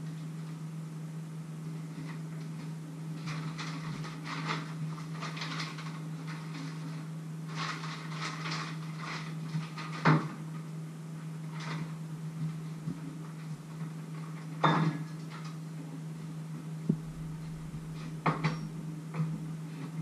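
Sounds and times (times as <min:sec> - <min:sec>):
steady low hum: 0:00.0 - 0:20.0
kitchen items rustling and clattering: 0:03.2 - 0:10.4.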